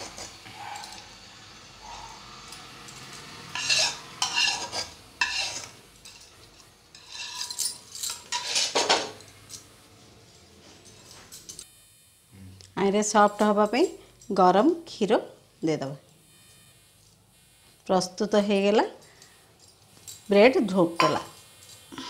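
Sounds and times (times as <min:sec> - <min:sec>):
metal spoon scraping a plate: 0:03.0 - 0:09.2.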